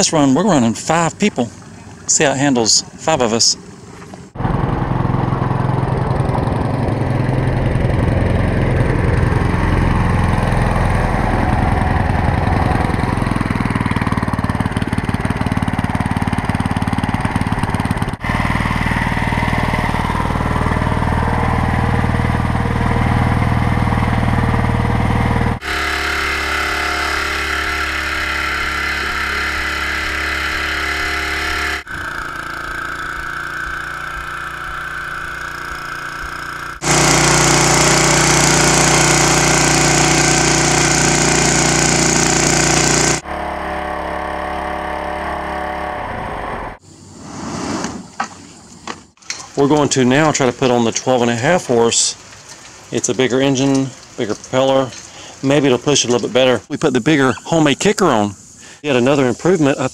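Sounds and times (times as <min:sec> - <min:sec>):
small boat motor running: 0:00.0 - 0:46.8.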